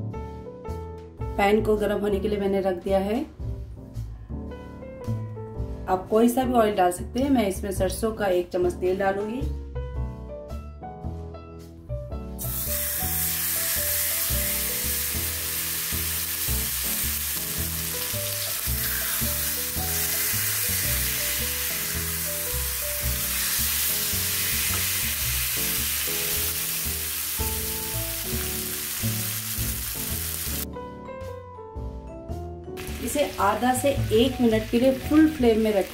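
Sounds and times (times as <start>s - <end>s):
background music: 0.0s - 35.9s
chicken sizzling in oil: 12.4s - 30.6s, 32.8s - 35.9s.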